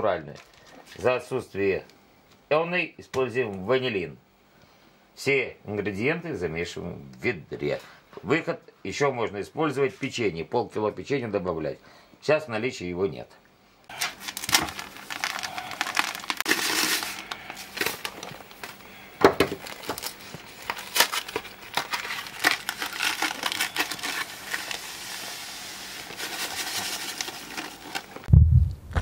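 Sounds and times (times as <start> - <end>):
packaging crinkling: 13.9 - 28.3
breadcrumbs shaken from box: 14.1 - 18.0, 26.0 - 28.2
dry grains pouring into bucket: 14.8 - 18.0.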